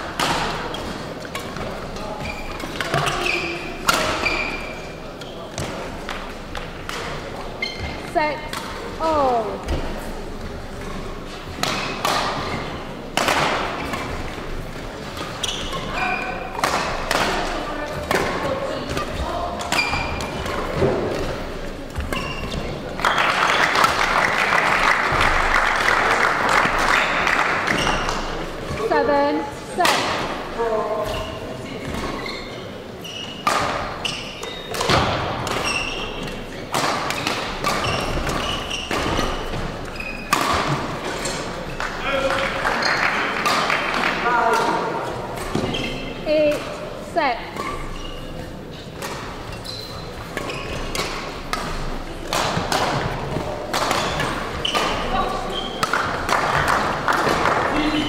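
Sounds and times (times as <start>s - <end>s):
racket hitting shuttlecock: 0.1s - 1.7s, 11.6s - 14.3s, 15.0s - 24.1s, 33.4s - 41.9s, 48.8s - 58.0s
shoes squeaking on court: 0.6s - 23.8s, 26.6s - 29.4s, 30.8s - 42.2s, 44.8s - 56.8s
racket striking shuttlecock: 50.3s - 57.7s.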